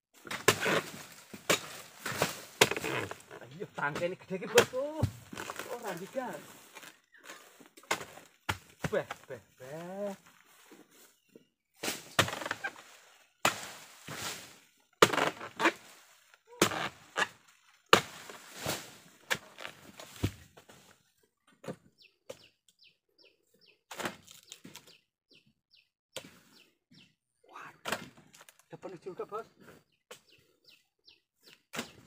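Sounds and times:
sickle hacking palm stalk: 0.2 - 10.1, 11.8 - 20.8, 23.9 - 25.0, 31.7 - 32.0
palm fronds rustling: 0.2 - 21.2, 23.9 - 24.9
bird chirping: 21.8 - 23.8, 24.4 - 27.2, 28.8 - 32.0.

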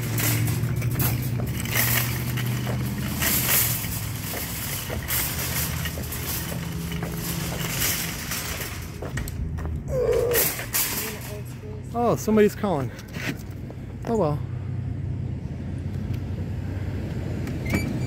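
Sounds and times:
frame rattles and clatters: 0.0 - 11.7
wheels rolling on rough asphalt: 0.0 - 14.1.

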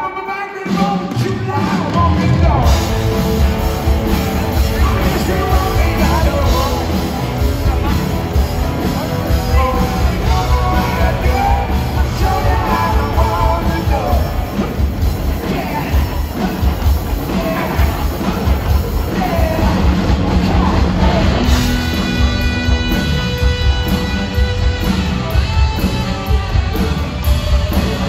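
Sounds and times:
man singing: 0.0 - 3.1, 4.4 - 8.0, 8.8 - 22.0
live rock band: 0.0 - 28.0.

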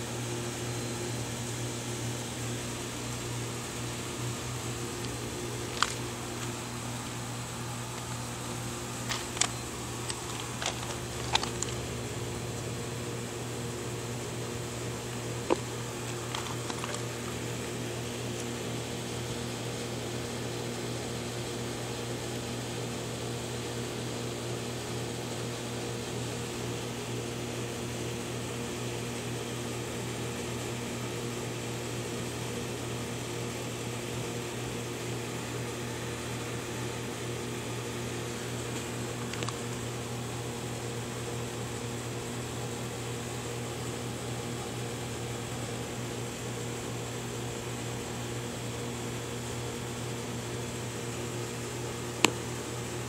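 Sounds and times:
machine hum: 0.0 - 22.2.

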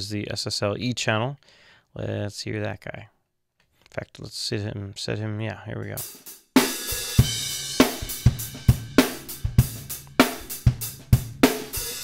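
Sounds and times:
drum kit playing a steady beat: 5.9 - 12.0.

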